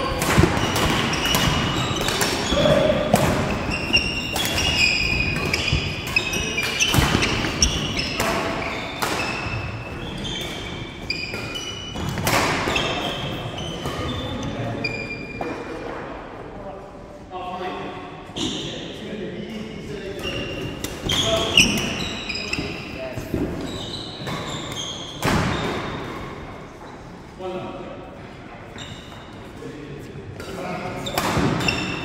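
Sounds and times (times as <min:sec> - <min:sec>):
racket hitting shuttlecock: 0:00.0 - 0:09.7, 0:10.4 - 0:13.1
trainers squeaking on wooden floor: 0:00.1 - 0:12.0, 0:20.2 - 0:25.8.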